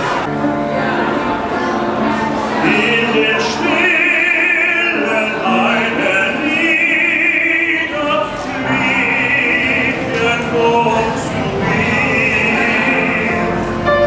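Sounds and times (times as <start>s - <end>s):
piano accompaniment: 0.0s - 14.0s
man singing opera: 2.6s - 14.0s.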